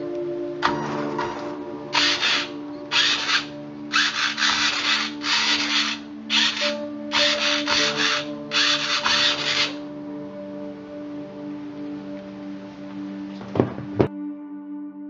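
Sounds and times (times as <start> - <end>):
electric motor and gears whirring: 1.9 - 9.8.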